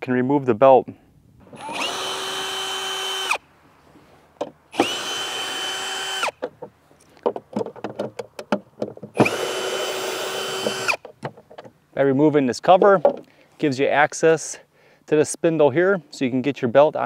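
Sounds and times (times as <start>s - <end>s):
cordless drill motor whine: 1.4s - 3.4s, 4.7s - 6.4s, 9.2s - 11.0s.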